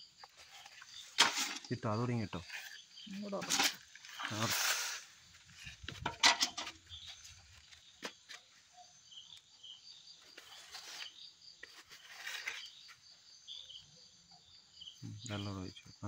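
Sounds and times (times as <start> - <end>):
hands rustling potting soil: 0.0 - 8.6
crickets chirping: 0.0 - 16.0.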